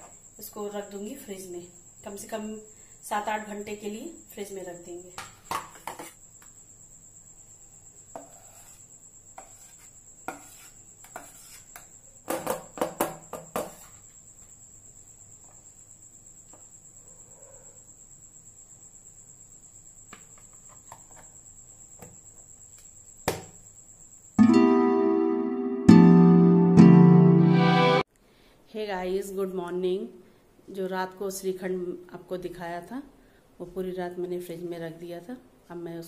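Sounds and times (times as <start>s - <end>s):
cricket trilling: 0.0s - 24.4s
steel spoon scraping steel bowl: 9.4s - 11.8s.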